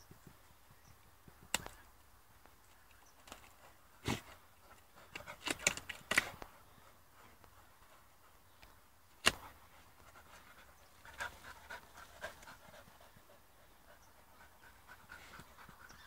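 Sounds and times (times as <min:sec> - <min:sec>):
dogs digging in soil: 0:03.2 - 0:08.1
dogs panting: 0:09.5 - 0:16.0.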